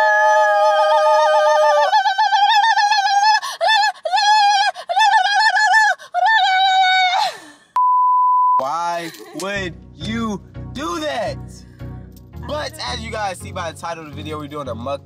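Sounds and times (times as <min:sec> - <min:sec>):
people singing in falsetto: 0:00.0 - 0:07.4.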